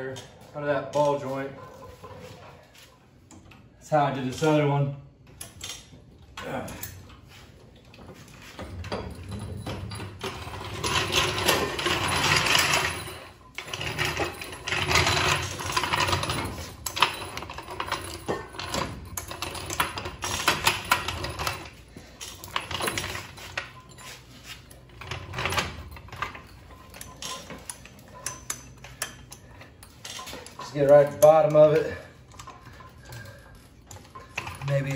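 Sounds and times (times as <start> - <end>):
floor jack rolling on concrete: 7.8 - 34.9
metal rattling and clicking: 7.8 - 34.9.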